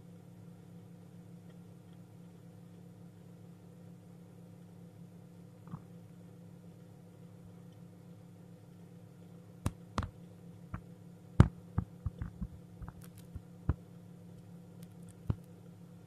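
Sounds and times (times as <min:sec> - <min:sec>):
low steady hum: 0:00.0 - 0:16.0
chicks tapping and pecking: 0:09.6 - 0:13.8.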